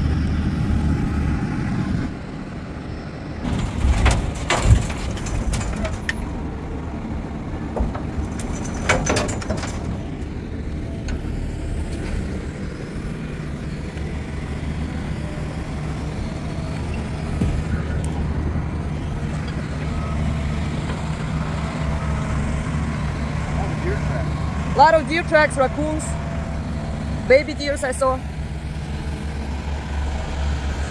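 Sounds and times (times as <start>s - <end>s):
heavy diesel engines running: 0.0s - 30.9s
dirt dropping into steel bed: 3.4s - 6.7s, 7.5s - 10.4s.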